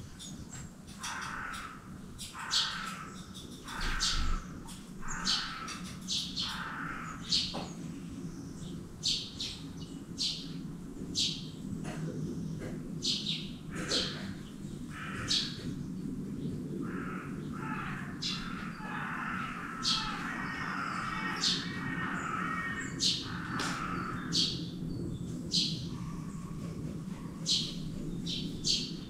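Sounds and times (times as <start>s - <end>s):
bird chatter: 0.0s - 10.6s, 11.2s - 29.0s
woodpecker calling: 0.2s - 7.6s, 16.8s - 24.7s
steady low hum: 1.6s - 29.0s.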